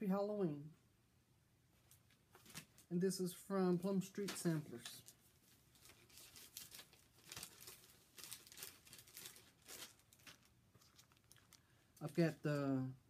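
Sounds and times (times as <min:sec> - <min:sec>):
packaging crinkling and rustling: 0:01.9 - 0:02.9, 0:04.2 - 0:11.8.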